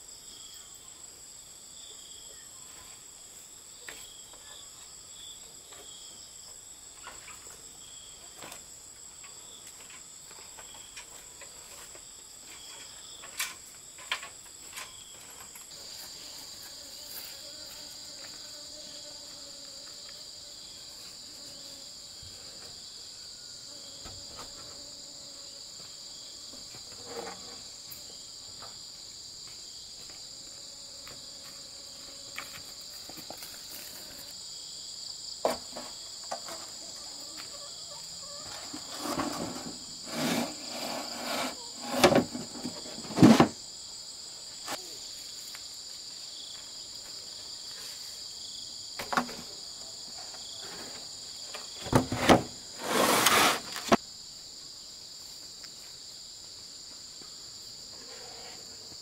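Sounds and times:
insects buzzing: 0.0s - 59.0s.

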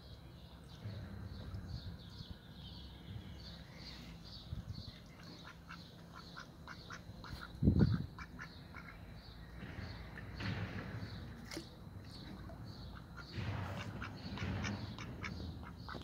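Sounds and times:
ducks quacking: 5.1s - 9.0s, 12.7s - 16.0s
loud low thump: 9.5s - 16.0s.

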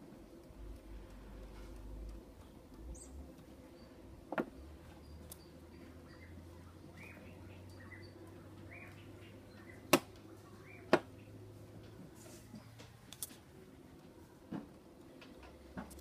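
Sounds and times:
sharp clicks: 4.5s - 5.5s.

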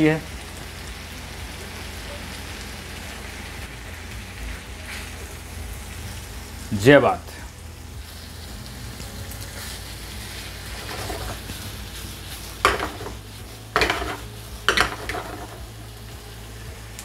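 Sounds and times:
spatula knocking against pan: 12.7s - 13.1s.

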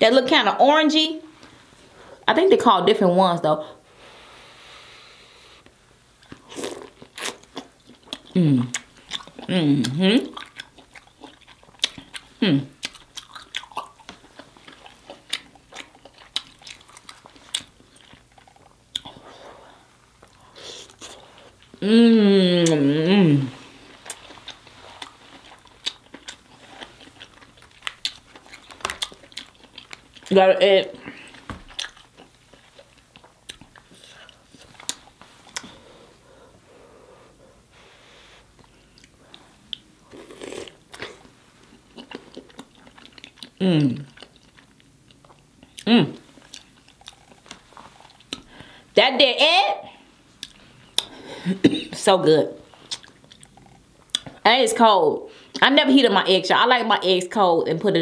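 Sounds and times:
biting and chewing egg: 6.2s - 19.2s, 24.0s - 30.3s.

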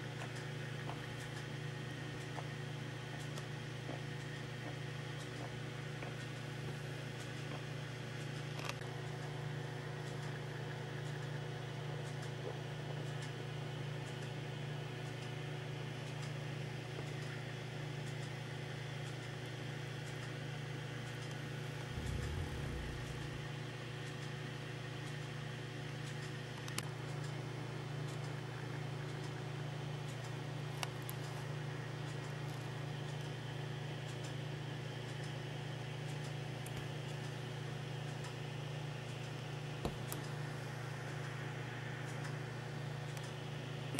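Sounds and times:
steady low hum: 21.4s - 24.3s
brief low rumble: 21.8s - 24.0s.

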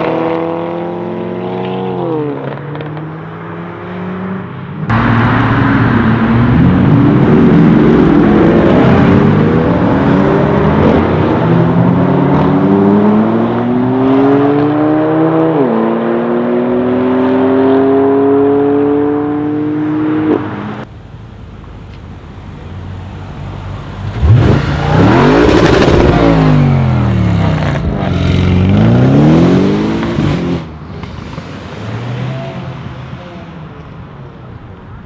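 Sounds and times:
car accelerating hard: 0.0s - 20.8s, 24.0s - 30.7s
car engine revving: 23.9s - 32.6s.

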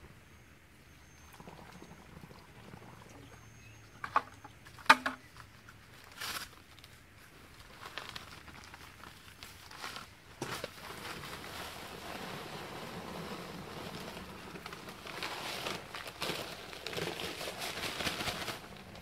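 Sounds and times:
paper bag rustling: 5.9s - 19.0s
water pouring from bucket: 10.8s - 19.0s.

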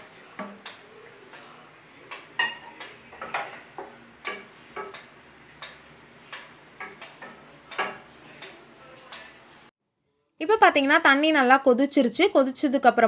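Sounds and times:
spatula scraping frying pan: 2.1s - 9.7s.

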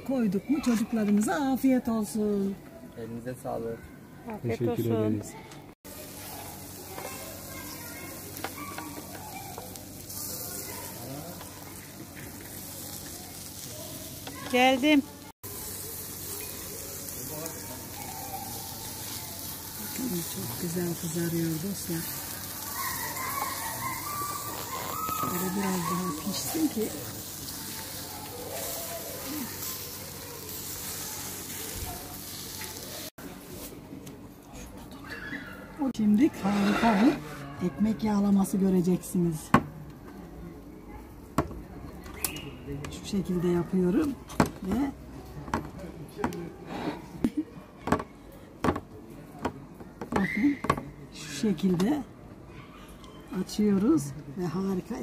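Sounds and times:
meat sizzling: 5.8s - 33.7s.

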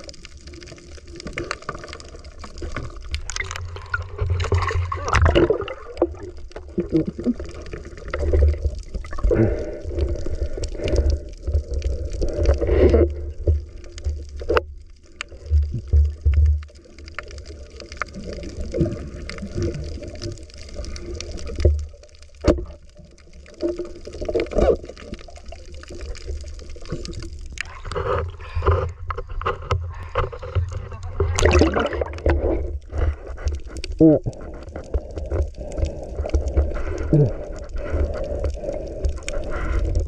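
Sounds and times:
water splashing: 0.0s - 14.5s, 29.5s - 40.0s
muffled water sloshing underwater: 0.0s - 40.0s.

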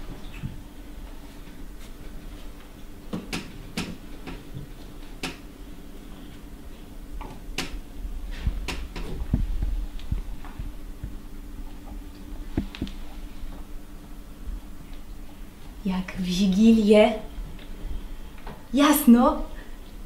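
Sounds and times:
low thumps: 8.4s - 13.1s.

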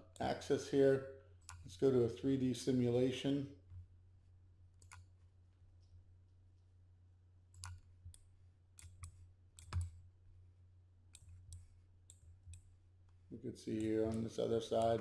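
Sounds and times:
faint low hum: 0.0s - 15.0s
computer mouse clicking: 4.8s - 5.2s, 7.5s - 10.0s, 11.1s - 13.2s, 13.8s - 15.0s.

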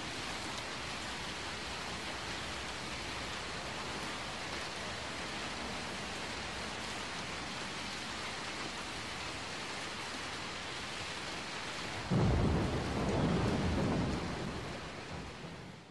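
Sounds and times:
steady rain: 0.0s - 15.9s
thunder clap rumbling: 12.0s - 15.6s.

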